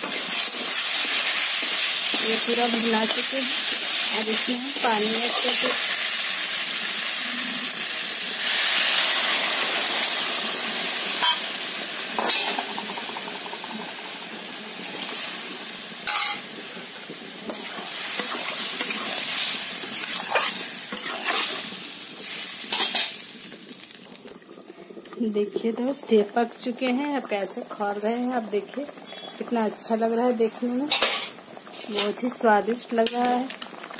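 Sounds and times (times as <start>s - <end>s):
water sizzling in hot pan: 0.0s - 33.9s
metal spatula scraping pan: 20.0s - 21.6s.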